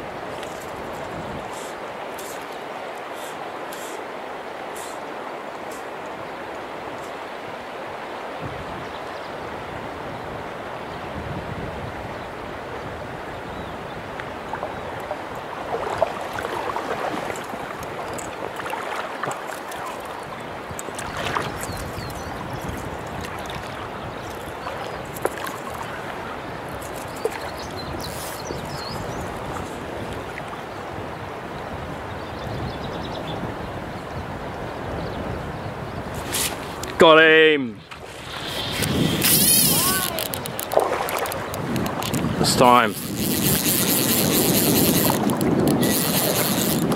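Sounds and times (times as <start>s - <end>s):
stream water over stones: 0.0s - 9.5s, 13.9s - 31.5s, 36.1s - 46.9s
sharp clicks: 38.4s - 46.9s.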